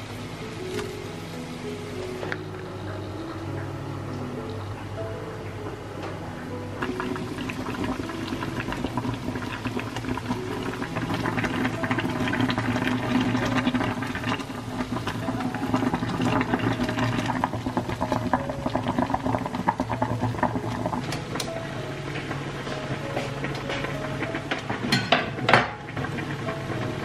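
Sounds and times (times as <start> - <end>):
water boiling in a saucepan: 5.7 - 27.0.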